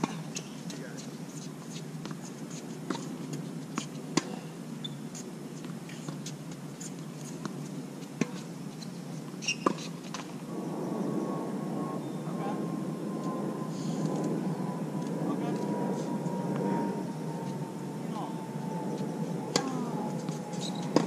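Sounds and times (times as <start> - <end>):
tennis balls struck and bouncing: 19.5 - 20.3.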